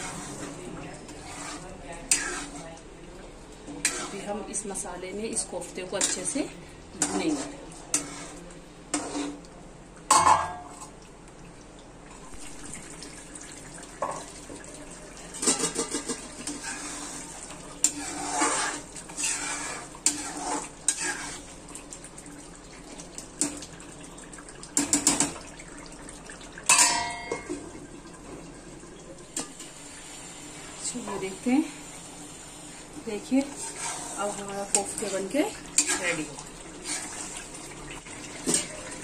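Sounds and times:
metal spoon scraping a pan: 0:00.0 - 0:02.8, 0:03.7 - 0:04.8, 0:05.4 - 0:09.5, 0:15.3 - 0:21.6, 0:33.2 - 0:37.4.

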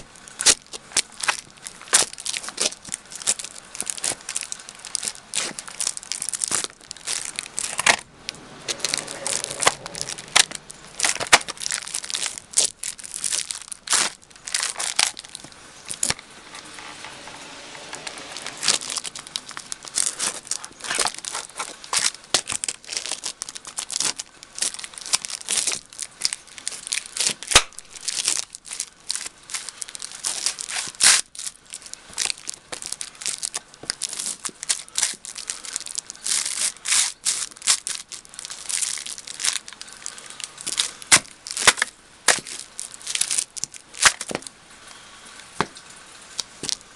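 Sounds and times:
boots crushing plastic container: 0:08.8 - 0:16.2, 0:40.6 - 0:42.7.

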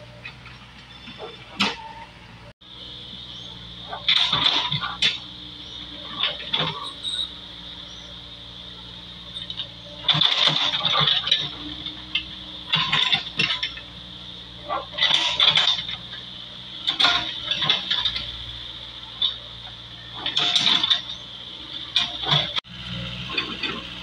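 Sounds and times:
diesel engine running: 0:00.0 - 0:24.0
metallic clanking and rattling: 0:03.9 - 0:05.2, 0:09.4 - 0:13.8, 0:14.6 - 0:16.2, 0:16.8 - 0:18.4, 0:20.1 - 0:21.2, 0:21.9 - 0:22.6.

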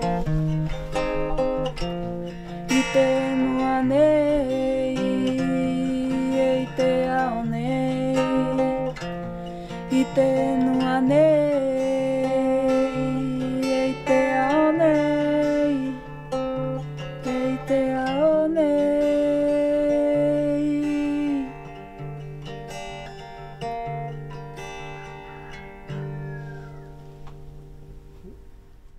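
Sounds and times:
strummed acoustic guitar: 0:00.0 - 0:28.8
woman singing with vibrato: 0:02.5 - 0:21.9.

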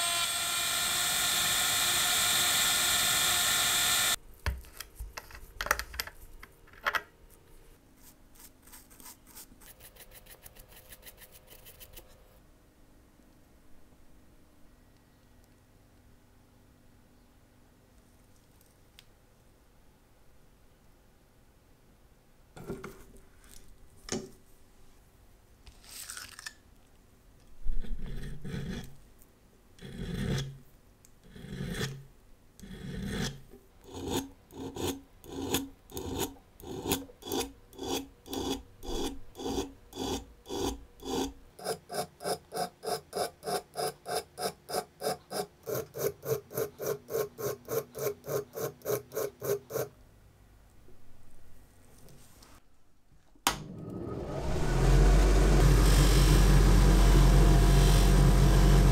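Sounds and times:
file rasping on steel: 0:32.6 - 0:49.9.

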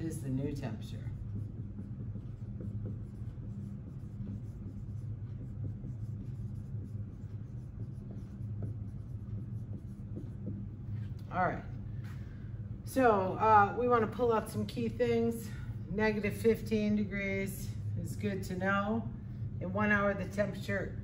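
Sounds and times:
marker writing on whiteboard: 0:00.0 - 0:11.8
steady low hum: 0:00.0 - 0:21.0.

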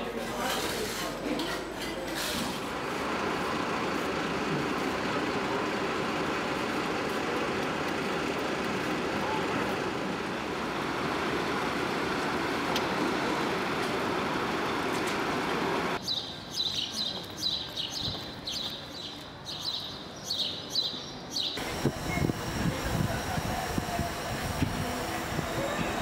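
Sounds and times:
steady rushing noise: 0:21.6 - 0:26.0.

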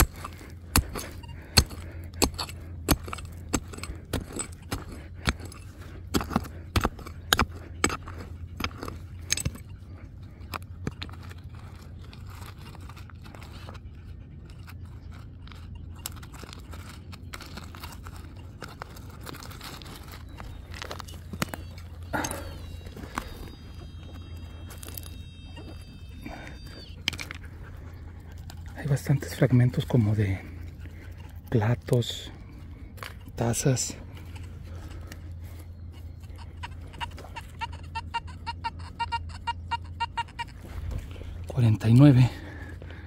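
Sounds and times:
hand tool digging stony ground: 0:00.0 - 0:37.8, 0:40.3 - 0:43.0.

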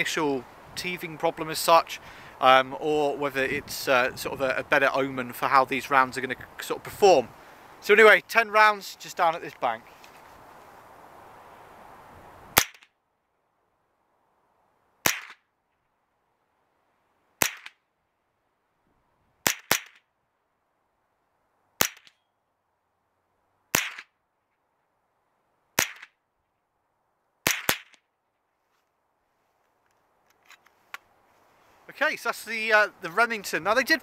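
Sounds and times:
rifle shots: 0:27.4 - 0:28.0.

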